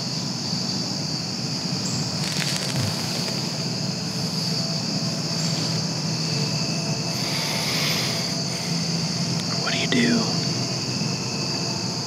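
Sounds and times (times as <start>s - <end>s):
crickets and insects chirping: 0.0s - 12.0s
deer alarm snort: 2.7s - 9.6s.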